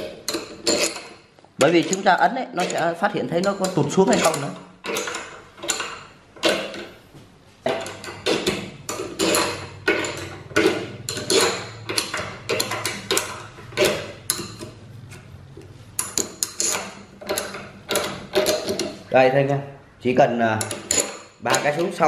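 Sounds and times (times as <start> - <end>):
metallic clinks and knocks: 0.0 - 7.0, 7.6 - 15.3, 16.0 - 19.1, 20.6 - 22.0.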